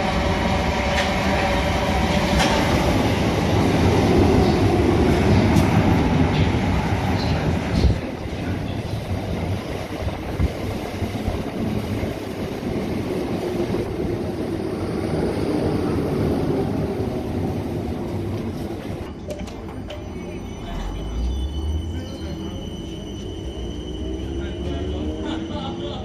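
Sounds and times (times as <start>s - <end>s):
train wheels rumbling on rails: 0.0s - 20.1s.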